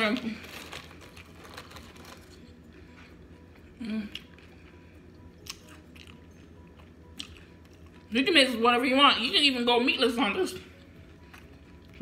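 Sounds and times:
tortilla chips crackling: 0.0 - 2.8.

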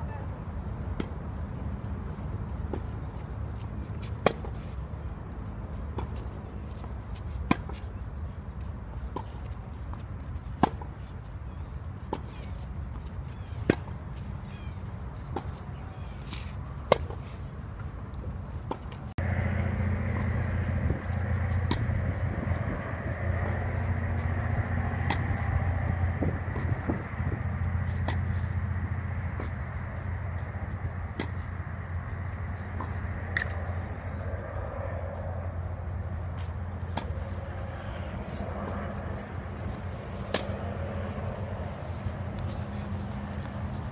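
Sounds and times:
steady low rumble: 17.5 - 43.9
distant racket hit: 18.7 - 22.2, 23.0 - 31.7, 32.6 - 34.1, 36.9 - 41.2
tennis racket hitting ball: 19.8 - 22.1, 23.2 - 29.7, 36.9 - 41.2.

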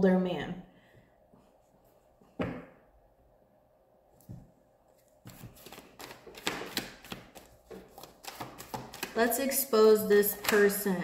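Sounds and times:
cards being shuffled: 5.0 - 9.2.

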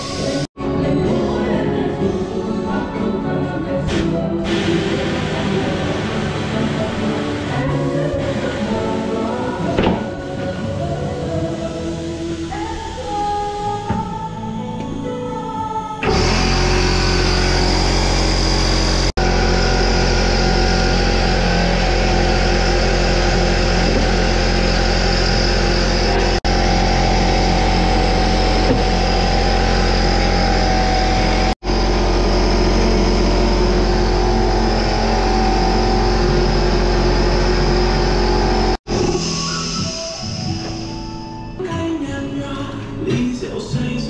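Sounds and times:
air compressor running: 3.9 - 14.2, 16.0 - 41.0.

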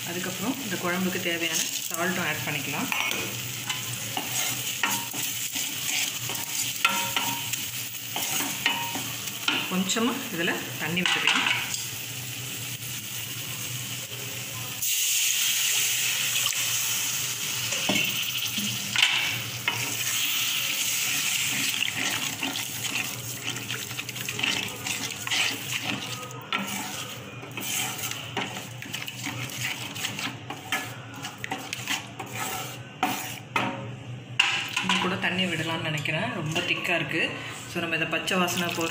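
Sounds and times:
loud sizzle in hot oil: 0.0 - 33.4
spatula scraping a pan: 1.5 - 9.7, 19.6 - 33.6.

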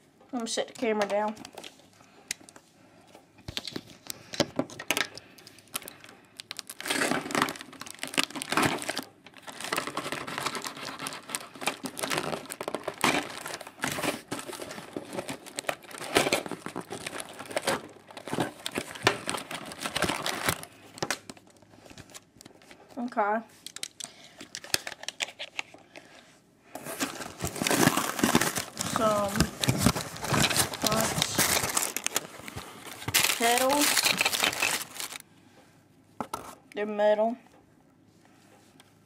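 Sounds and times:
cardboard box and tape tearing: 26.8 - 32.3, 33.0 - 35.2.

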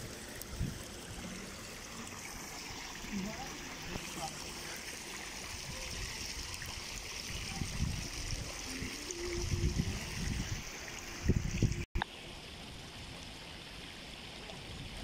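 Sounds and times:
water pouring into pool: 0.0 - 15.0.

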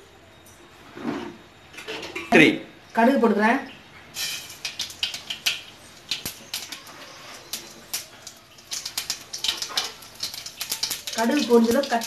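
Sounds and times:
faint oil sizzle: 4.1 - 12.0
seeds popping in hot oil: 4.2 - 12.0.

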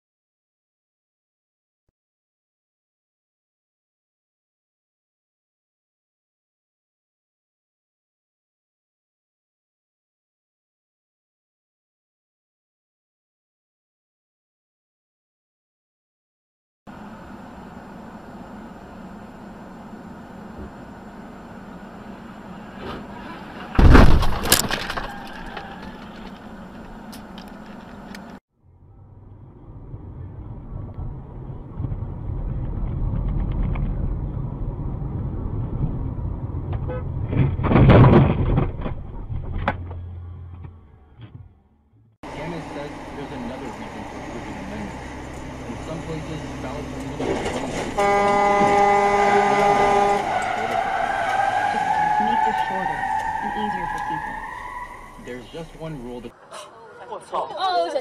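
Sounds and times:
road noise: 16.9 - 58.0
vehicle crash impact: 22.7 - 26.9, 36.8 - 40.1, 46.1 - 51.4
debris breaking and cracking: 23.8 - 26.0.

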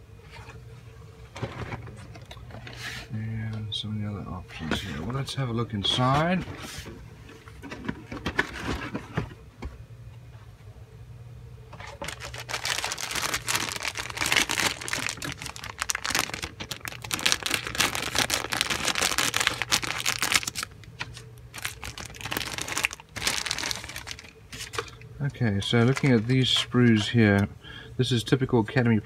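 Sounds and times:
plastic bags crinkling: 11.8 - 27.2.

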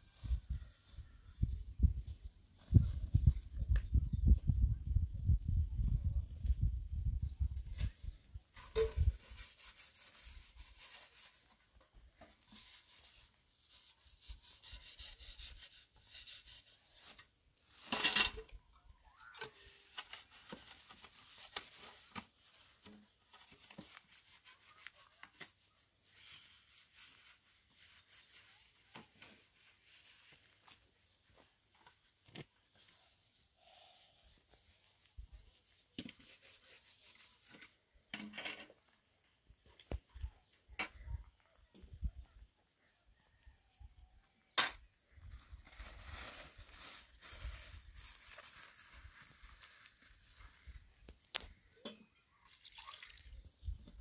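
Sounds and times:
light rubbing and scraping: 7.4 - 39.0.

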